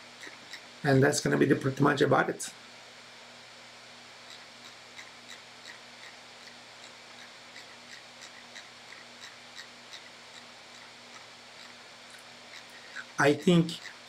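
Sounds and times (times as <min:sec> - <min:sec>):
faint electrical hum: 0:00.0 - 0:14.0.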